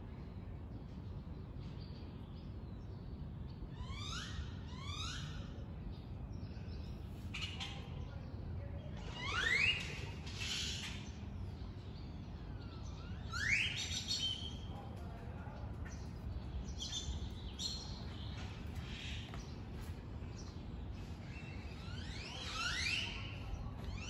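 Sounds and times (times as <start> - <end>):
faint bird chirps: 1.6 - 24.0
rising whistled bird calls: 9.1 - 11.0, 12.9 - 14.5
low background rumble: 10.2 - 22.0.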